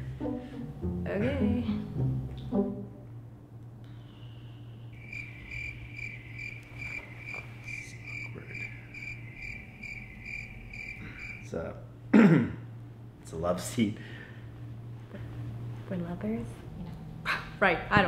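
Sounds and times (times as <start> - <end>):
faint low room hum: 0.0 - 18.0
cricket chirping: 3.9 - 11.6.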